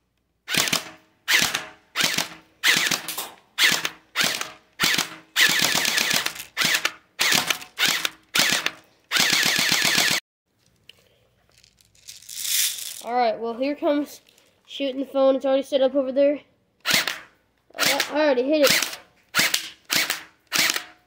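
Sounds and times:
airsoft gun rapid fire: 0.5 - 10.2, 16.8 - 21.0.

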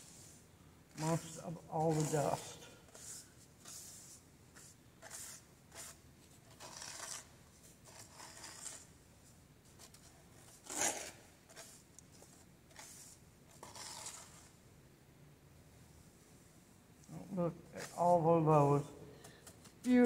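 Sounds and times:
hand scraping seeds on screen: 0.0 - 9.0, 9.7 - 14.6, 17.1 - 20.0.

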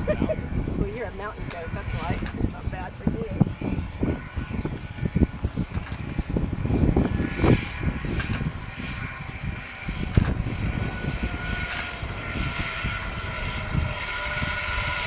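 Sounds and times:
wind buffeting microphone: 0.0 - 15.0
zipline pulley whirring: 5.4 - 6.5, 7.9 - 9.1, 10.0 - 12.3.

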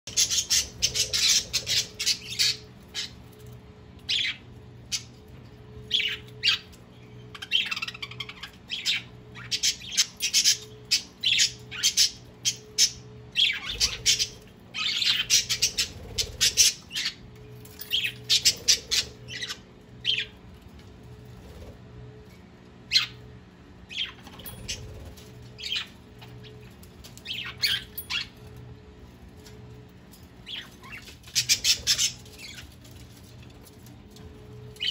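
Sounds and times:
budgerigars squawking and chirping: 0.1 - 3.1, 7.3 - 17.2, 30.5 - 32.7
faint steady hum: 0.1 - 34.9.

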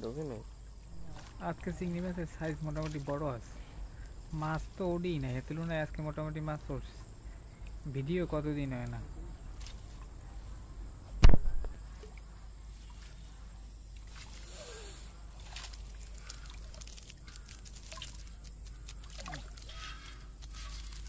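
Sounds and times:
water sloshing and dripping: 1.0 - 4.8, 11.8 - 21.0
loud thump: 11.2 - 11.7.

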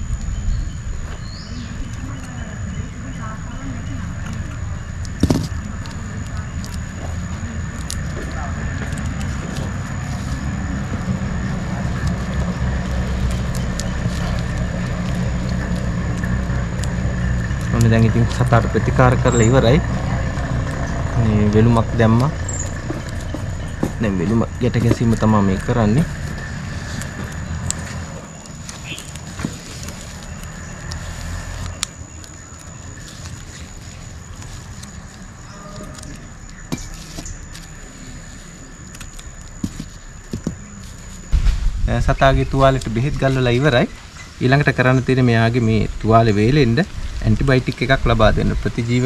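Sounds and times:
steady low rumble: 0.0 - 32.2, 40.0 - 49.0
small ticks: 3.9 - 41.5
gloved hands handling bandage: 26.2 - 37.8
faint high whine: 36.6 - 49.0.

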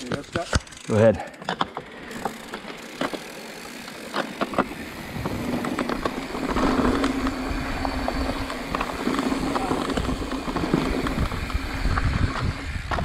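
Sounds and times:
bike tyre noise on trail: 0.0 - 13.0
wind rushing on microphone: 5.0 - 5.7, 6.6 - 13.0.

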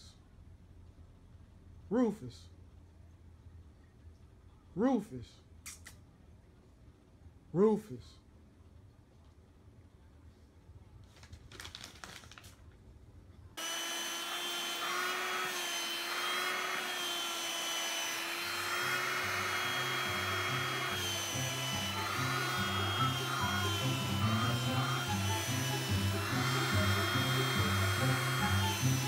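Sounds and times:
handheld vacuum cleaner running: 13.6 - 29.0.

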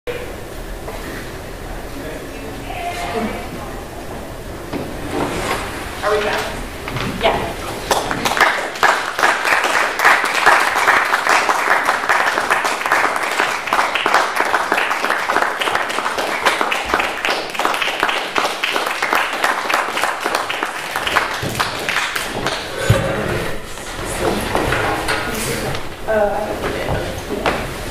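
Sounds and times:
audience applauding: 7.7 - 23.0.

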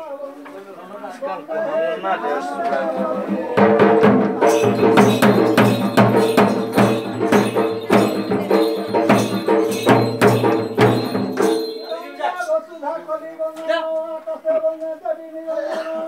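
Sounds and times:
sharp percussion strokes: 3.0 - 12.5.

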